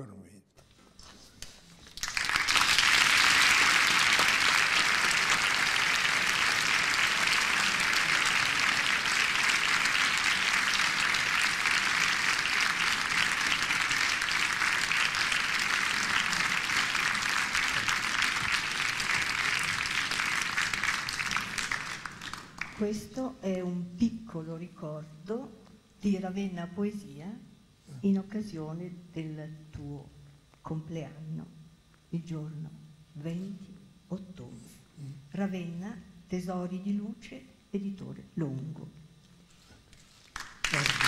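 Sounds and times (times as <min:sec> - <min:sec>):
audience applauding: 0:01.8 - 0:22.9, 0:40.2 - 0:41.0.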